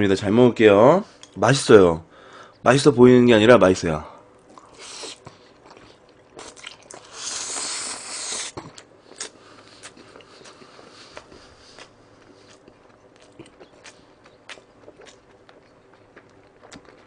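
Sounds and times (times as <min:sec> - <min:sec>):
chewing with full mouth: 0:04.5 - 0:17.0
person slurping noodles: 0:04.7 - 0:05.3, 0:06.4 - 0:09.9.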